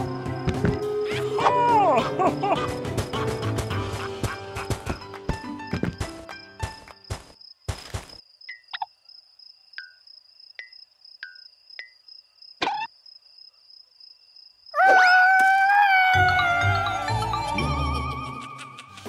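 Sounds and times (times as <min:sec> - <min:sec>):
cartoon cricket chirping: 0:07.0 - 0:15.2.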